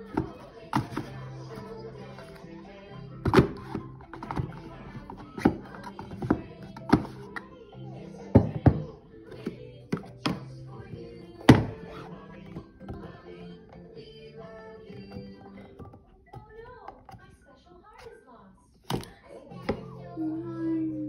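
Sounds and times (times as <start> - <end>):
background music: 0.0 - 16.8, 18.9 - 21.0
hard case knocks and taps: 8.3 - 10.5, 12.5 - 13.2.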